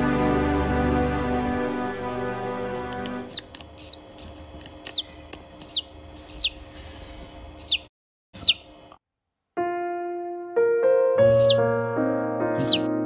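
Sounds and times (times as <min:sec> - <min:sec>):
piano music: 0:00.0 - 0:03.4, 0:09.6 - 0:13.0
chick peeping: 0:03.3 - 0:06.6, 0:07.6 - 0:08.7, 0:11.2 - 0:11.6, 0:12.6 - 0:12.9.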